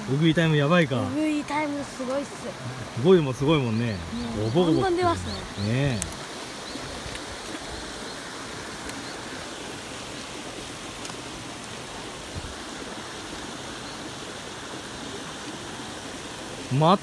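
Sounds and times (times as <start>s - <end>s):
fountains splashing in pond: 0.0s - 17.0s.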